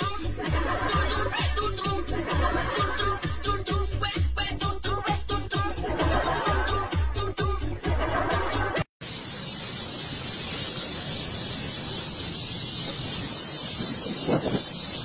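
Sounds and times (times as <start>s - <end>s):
dance music: 0.0s - 8.9s
ducklings peeping: 9.0s - 15.0s.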